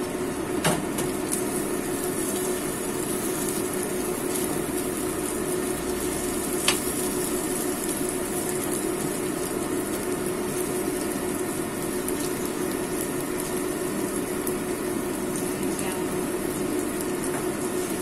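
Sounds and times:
egg sizzling in a pan: 0.0s - 18.0s
spatula tapping on pan: 6.6s - 6.8s.

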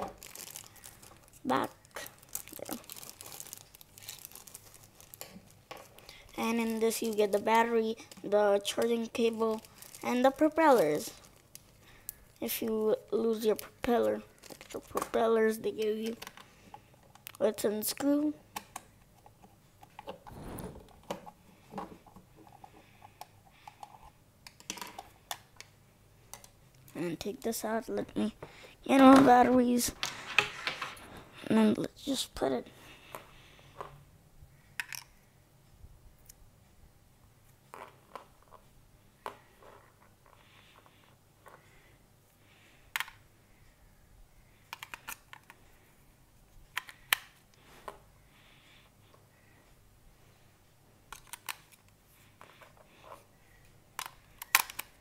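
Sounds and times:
handling rustle: 0.0s - 11.8s.

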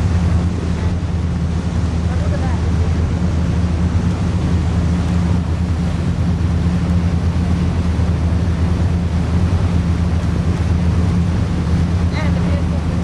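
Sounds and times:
boat engine drone: 0.0s - 13.0s
rush of wind and water: 0.0s - 13.0s.

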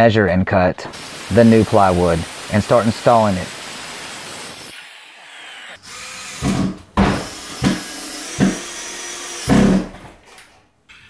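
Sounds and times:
cordless drill driving screws: 7.2s - 10.4s.

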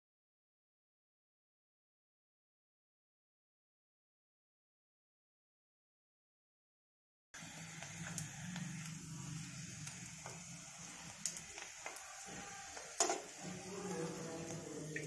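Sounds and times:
food sizzling in hot oil: 7.4s - 15.0s
metal tongs clicking on pan: 13.0s - 13.3s.

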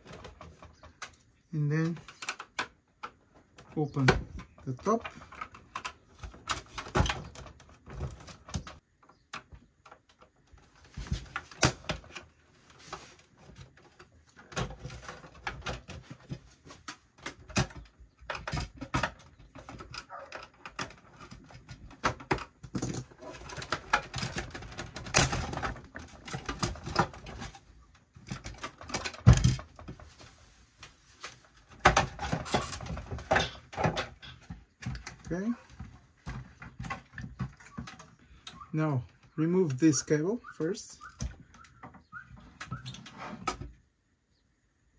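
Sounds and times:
plastic clicks and scrapes: 1.8s - 30.2s.

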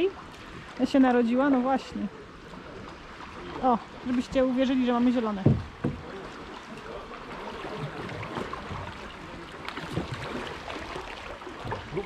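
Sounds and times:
paddles splashing in water: 0.0s - 12.0s
water lapping against a hull: 0.0s - 12.0s.

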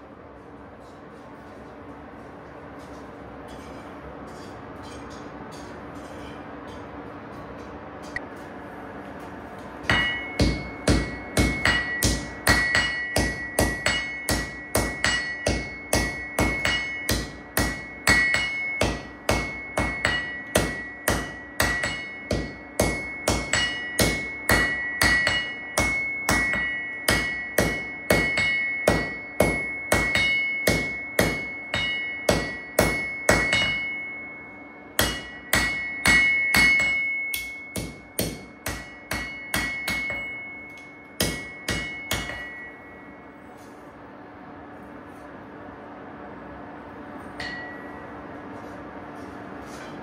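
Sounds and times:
anvil ringing: 9.8s - 43.7s, 47.2s - 48.4s
hammer striking anvil: 9.8s - 43.8s, 47.2s - 48.4s.

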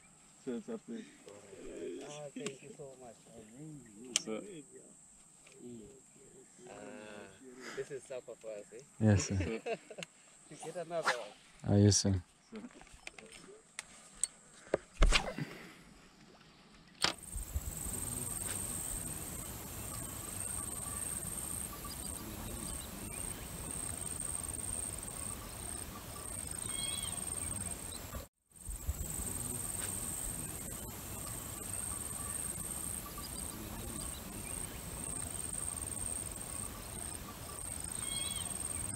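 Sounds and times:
faint chirps: 17.2s - 38.9s
insects trilling: 17.2s - 38.9s.

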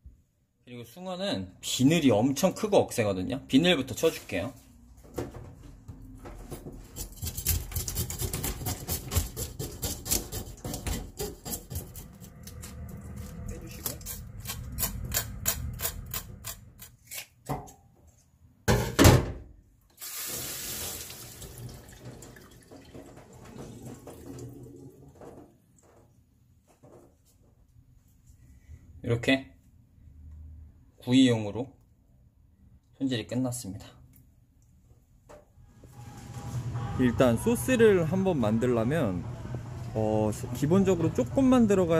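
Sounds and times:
knife scraping fish scales: 6.9s - 12.7s, 13.8s - 17.4s
tap running water into sink: 20.0s - 25.4s.

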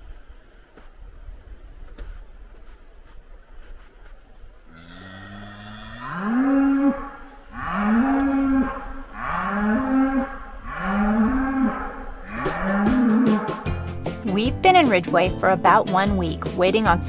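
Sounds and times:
cow mooing: 4.7s - 13.7s.

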